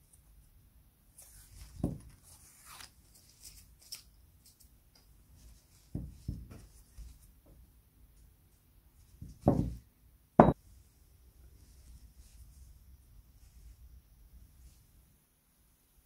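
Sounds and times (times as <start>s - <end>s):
soft thuds on felt: 5.9s - 6.7s, 9.2s - 9.8s.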